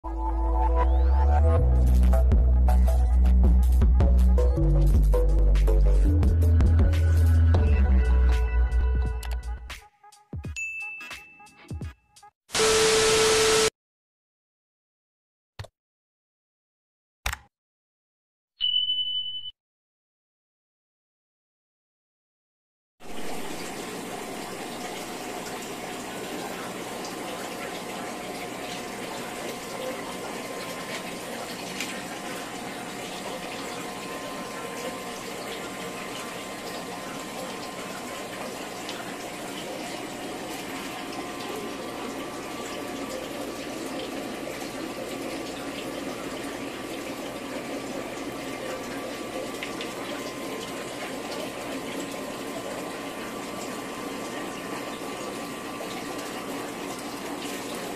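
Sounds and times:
faint pump hum: 0:23.0 - 0:57.9.

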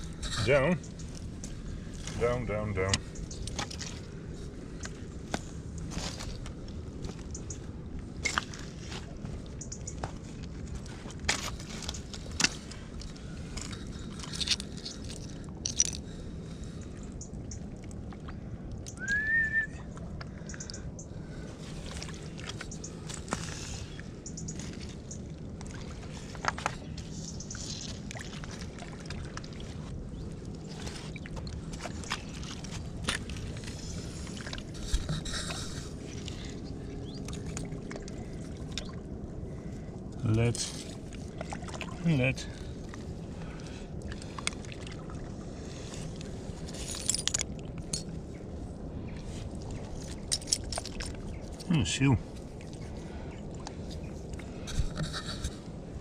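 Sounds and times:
stones clicking underfoot: 0:10.0 - 0:16.2
short rising whistle: 0:19.0 - 0:19.9.

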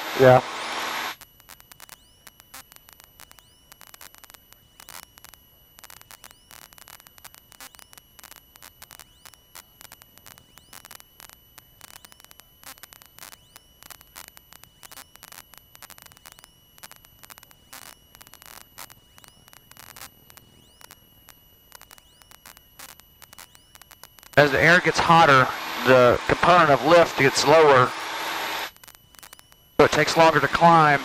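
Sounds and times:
intercom hiss: 0:00.0 - 0:01.2, 0:24.4 - 0:28.8, 0:29.8 - 0:31.0
crackling static clicks: 0:00.0 - 0:31.0
high-pitched whine: 0:00.0 - 0:31.0.

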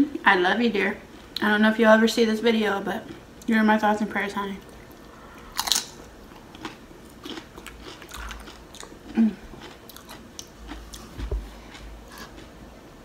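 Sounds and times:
tortilla chips crunching: 0:05.5 - 0:12.6.

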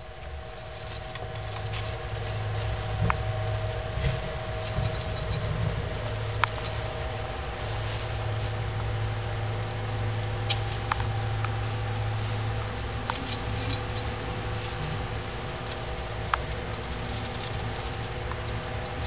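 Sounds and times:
hamsters rustling in shavings: 0:00.0 - 0:19.0
steady low hum: 0:00.0 - 0:19.0.

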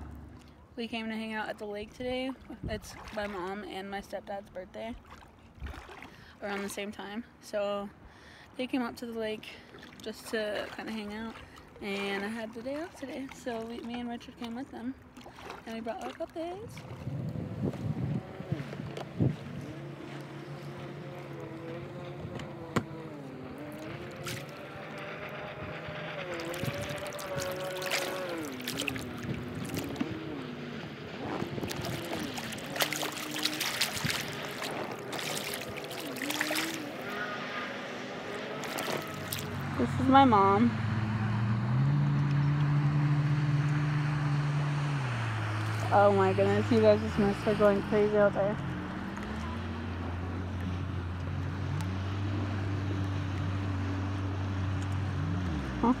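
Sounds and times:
water lapping: 0:00.0 - 0:41.2, 0:43.6 - 0:56.0
distant jet ski engine whining: 0:00.0 - 0:56.0
wind on microphone: 0:16.6 - 0:20.0, 0:25.5 - 0:36.9.

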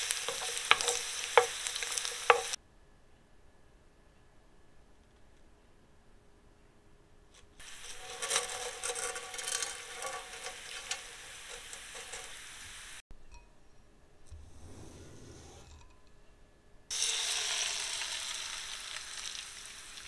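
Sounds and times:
oil sizzling in a frying pan: 0:00.0 - 0:02.6, 0:07.6 - 0:13.0, 0:16.9 - 0:20.0.

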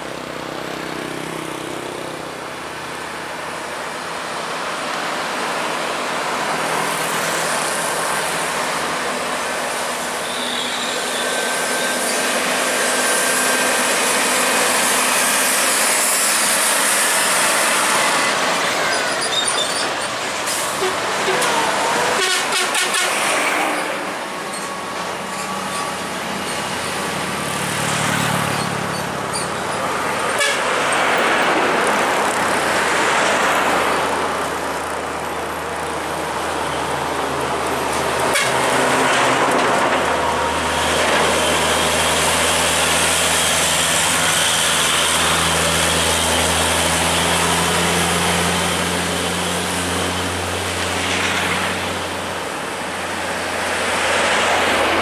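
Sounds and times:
diesel trucks driving past: 0:00.0 - 0:55.0
truck horn toots: 0:20.8 - 0:23.2, 0:30.4 - 0:30.8, 0:38.3 - 0:38.8.

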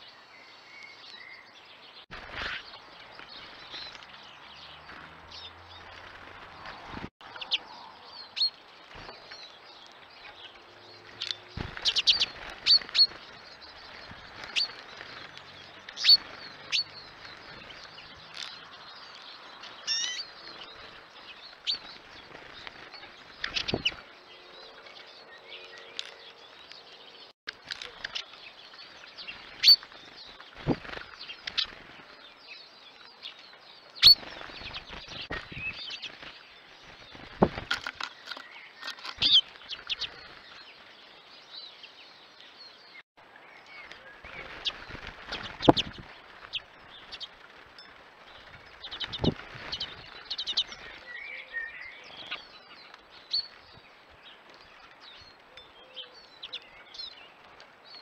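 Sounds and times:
wings fluttering: 0:02.1 - 0:26.9, 0:27.5 - 0:41.4, 0:43.8 - 0:51.3
high bird chirps: 0:34.0 - 0:36.1.

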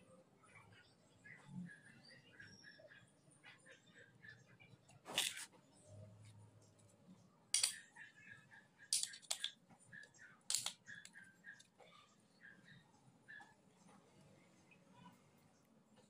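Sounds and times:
hard parts clicking and knocking: 0:07.6 - 0:07.8, 0:09.0 - 0:09.5, 0:10.5 - 0:10.8.

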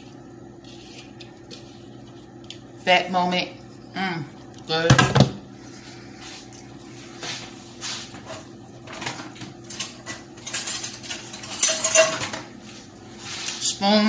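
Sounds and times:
utensils clinking against dishes: 0:08.3 - 0:12.5.

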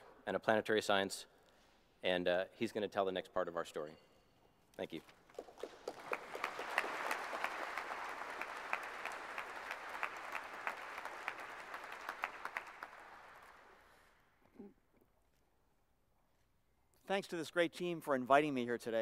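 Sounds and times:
audience applauding: 0:05.3 - 0:14.0.

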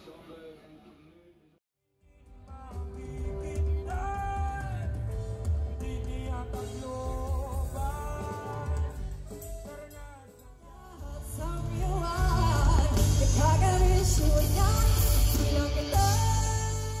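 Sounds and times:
live rock band playing: 0:02.1 - 0:17.0
woman singing: 0:10.8 - 0:17.0.

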